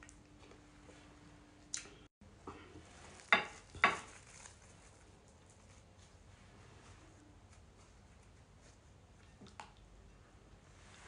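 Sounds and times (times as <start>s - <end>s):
plastic wrap rustles and knocks: 3.0s - 5.0s.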